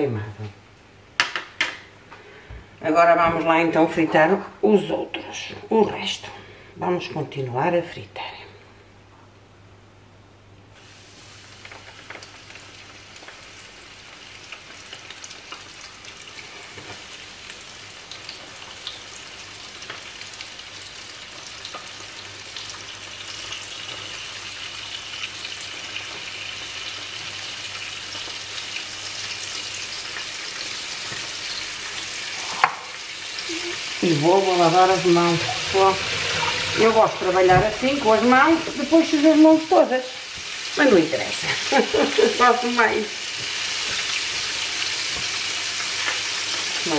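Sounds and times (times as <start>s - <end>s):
fish sizzling in hot oil: 10.8s - 46.9s.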